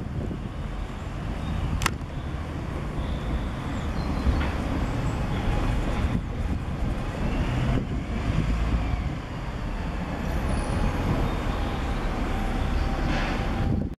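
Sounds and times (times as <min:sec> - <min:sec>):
vehicles crossing railway crossing: 0:00.0 - 0:14.0.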